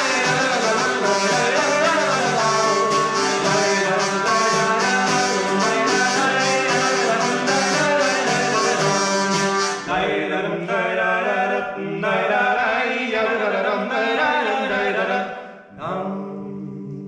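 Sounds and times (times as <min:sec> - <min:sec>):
bagpipe folk tune with drone: 0:00.0 - 0:09.9
guitar strumming: 0:00.0 - 0:10.0.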